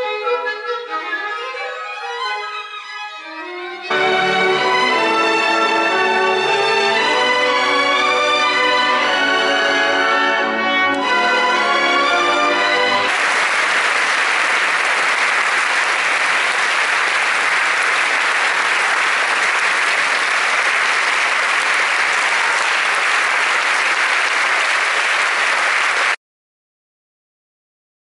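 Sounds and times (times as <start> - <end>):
orchestra holding a chord: 3.9 - 13.4
audience applauding: 11.7 - 26.2.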